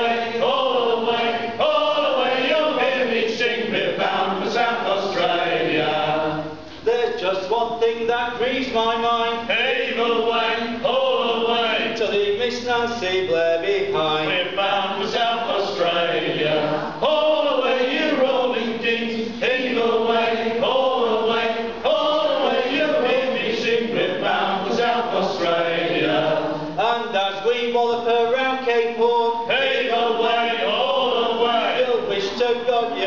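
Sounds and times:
men singing a sea shanty: 0.0s - 6.6s, 7.2s - 33.0s.

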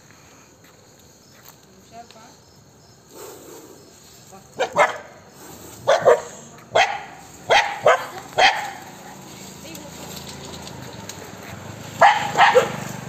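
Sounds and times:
dog barking: 4.6s - 5.2s, 5.8s - 8.9s, 12.0s - 12.9s.

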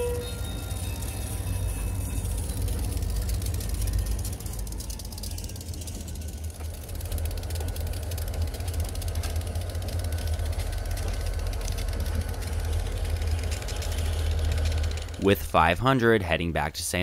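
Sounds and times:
diesel locomotive engine drone: 0.0s - 17.0s.

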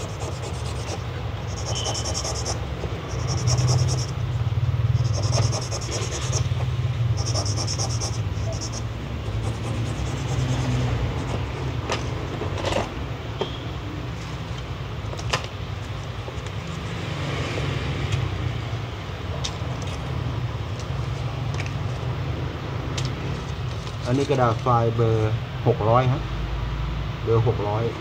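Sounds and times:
steady low hum: 0.0s - 12.3s.

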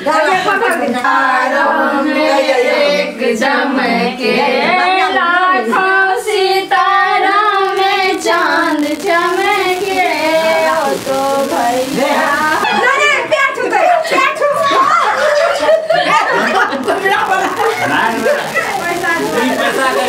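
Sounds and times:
women singing: 0.0s - 16.5s.

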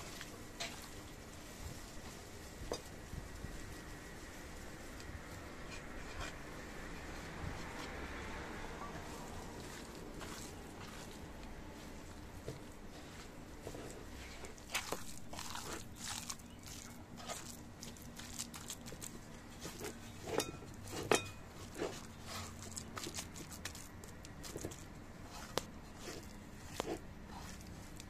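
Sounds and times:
hands squelching raw meat: 9.0s - 28.0s.

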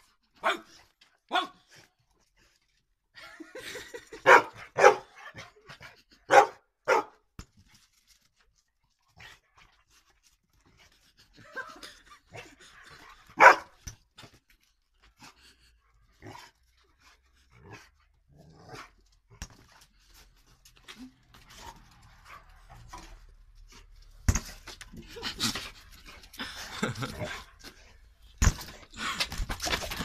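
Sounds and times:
dog barking: 0.4s - 0.7s, 1.3s - 1.6s, 4.2s - 5.2s, 6.3s - 7.2s, 13.4s - 13.8s.

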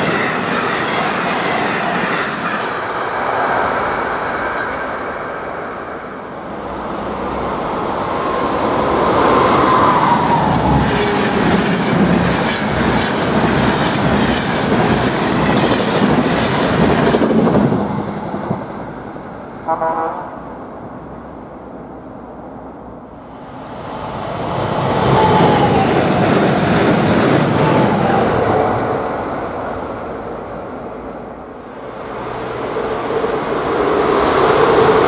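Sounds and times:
wheel and rail noise: 0.0s - 19.4s
passenger trains rushing past: 0.0s - 35.0s.

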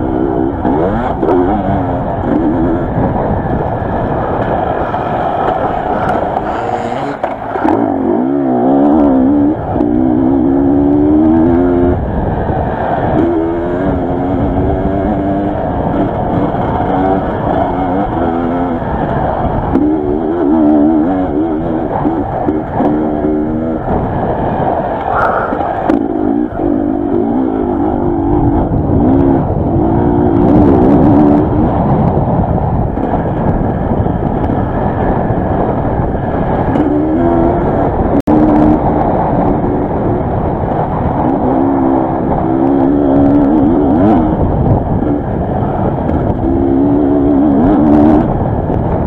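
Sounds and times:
dirt bike engine revving: 0.0s - 49.0s.

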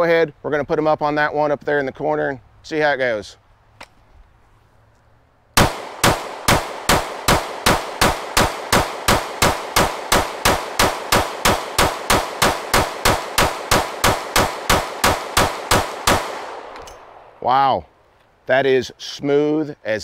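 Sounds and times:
rapid pistol shots: 5.6s - 17.4s.

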